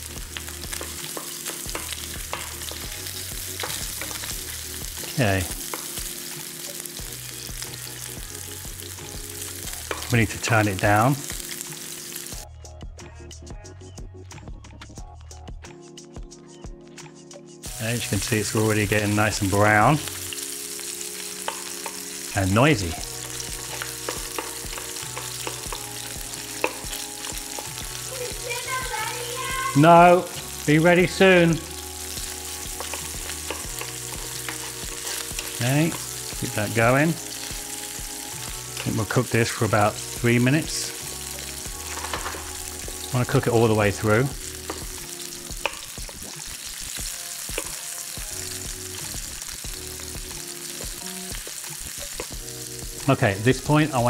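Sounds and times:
fat crackling and popping: 0:00.0 - 0:07.3, 0:17.8 - 0:53.2
sausage sizzling in oil: 0:00.0 - 0:12.5, 0:17.6 - 0:54.0.

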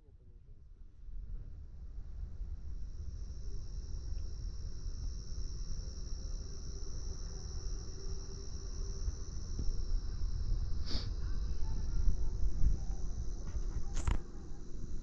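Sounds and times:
crickets chirring: 0:02.0 - 0:15.0.

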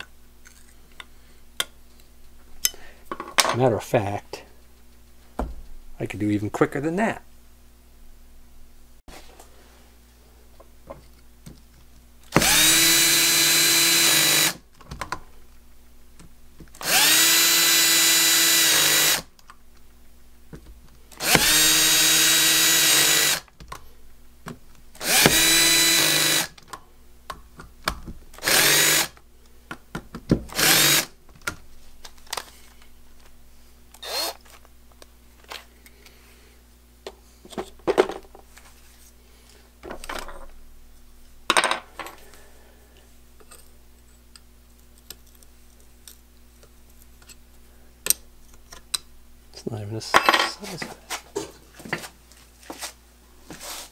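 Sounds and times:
cordless drill whining: 0:12.3 - 0:14.6, 0:16.8 - 0:19.3, 0:21.2 - 0:23.5, 0:25.0 - 0:26.6, 0:28.4 - 0:29.2, 0:30.5 - 0:31.1, 0:34.0 - 0:34.5.

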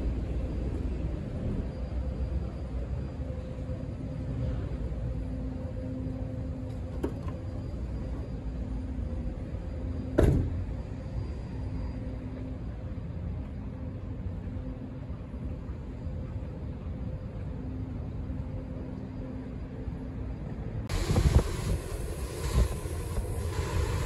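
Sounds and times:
sharp thump: 0:10.2 - 0:10.6.

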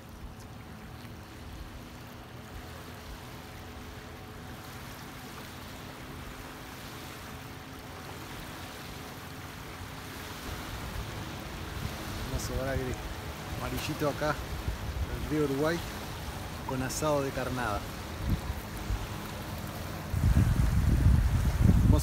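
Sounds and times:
waves washing on gravel shore: 0:10.1 - 0:22.0
wind rushing: 0:18.0 - 0:19.2, 0:20.0 - 0:22.0.

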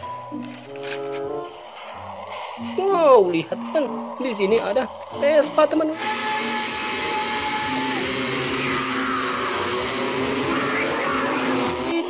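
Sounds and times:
scooter engines revving high: 0:05.9 - 0:12.0.

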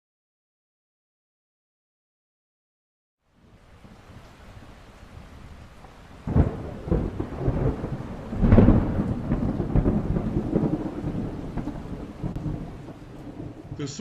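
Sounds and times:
steady rain: 0:03.2 - 0:14.0
thunder rumbling: 0:03.7 - 0:14.0
thunder crack: 0:06.2 - 0:14.0.

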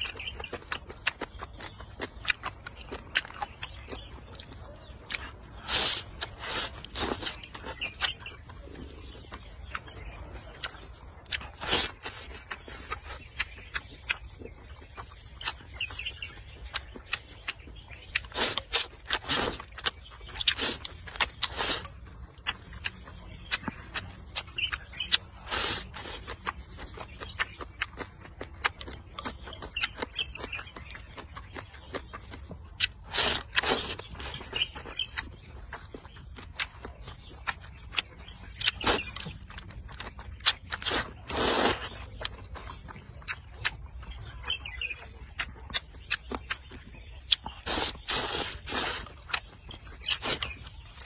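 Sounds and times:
person slurping noodles: 0:40.8 - 0:41.9, 0:47.7 - 0:49.1.

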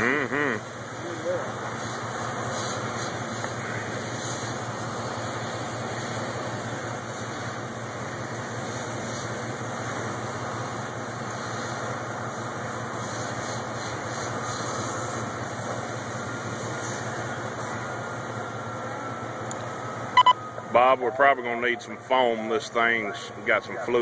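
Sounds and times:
steady hiss: 0:00.0 - 0:18.4
vehicle engine idling: 0:00.0 - 0:24.0.

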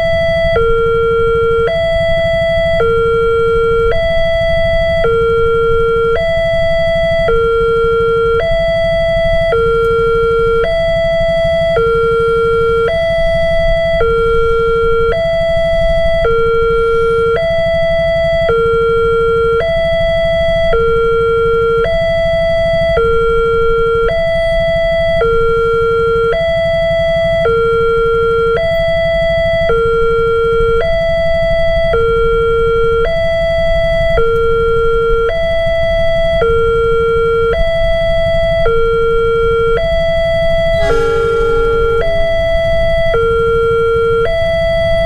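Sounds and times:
level crossing alarm two tones: 0:38.5 - 0:45.0
low rumble: 0:40.0 - 0:44.2.

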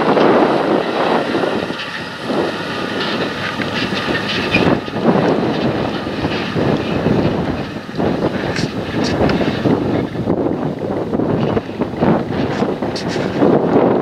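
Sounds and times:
tractor engine passing: 0:00.0 - 0:13.1
trailer running gear: 0:00.0 - 0:14.0
wind buffeting microphone: 0:00.0 - 0:14.0.

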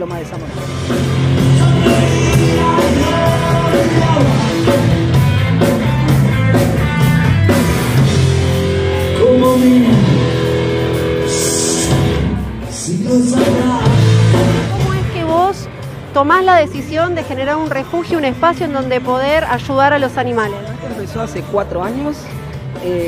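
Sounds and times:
electric guitar: 0:00.0 - 0:17.2
bass: 0:00.0 - 0:23.0
drums: 0:00.0 - 0:23.0
man singing: 0:01.2 - 0:05.0, 0:09.0 - 0:10.5, 0:11.2 - 0:14.7.

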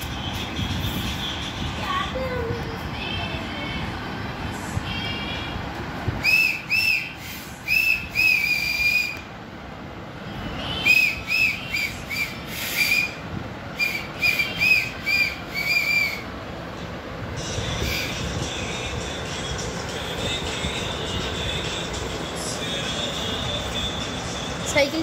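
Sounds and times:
high whistled notes: 0:06.2 - 0:09.3, 0:10.6 - 0:16.3.

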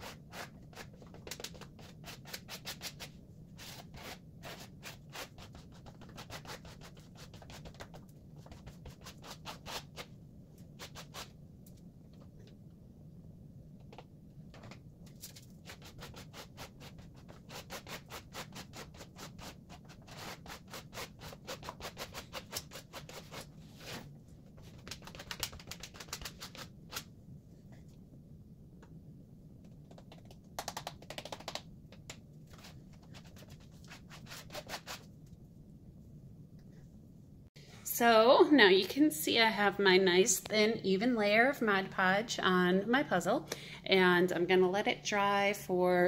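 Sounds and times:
steady low hum: 0:26.6 - 0:30.6, 0:34.9 - 0:46.0.

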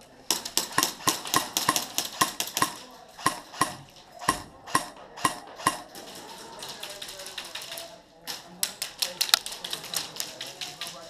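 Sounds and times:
airsoft gunfire cracks: 0:00.3 - 0:06.0.

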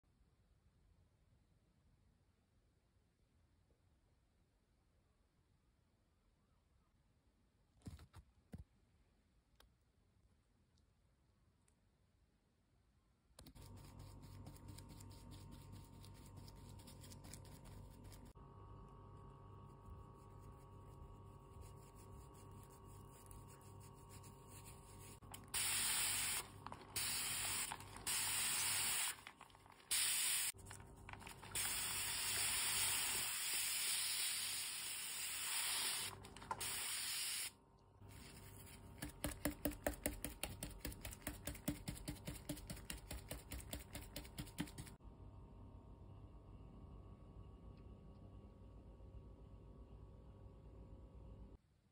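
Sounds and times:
aerosol can spraying: 0:25.4 - 0:29.2, 0:29.9 - 0:30.6, 0:31.4 - 0:37.5.

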